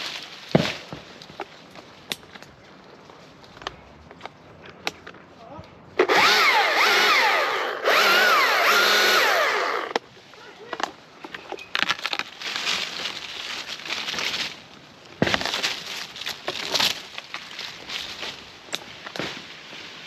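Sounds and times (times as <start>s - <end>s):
crackling and rustling: 0.0s - 6.0s, 9.9s - 20.0s
chainsaw cutting wood: 6.0s - 10.0s.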